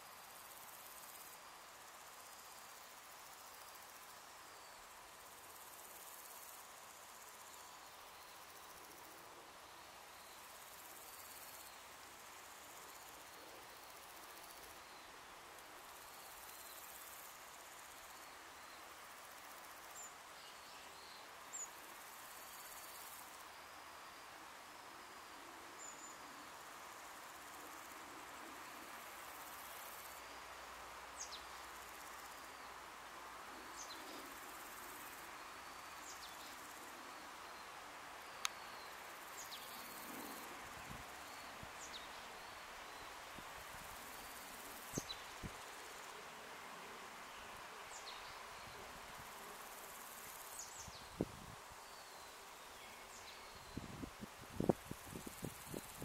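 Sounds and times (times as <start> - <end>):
insect drone: 0.0 - 56.0.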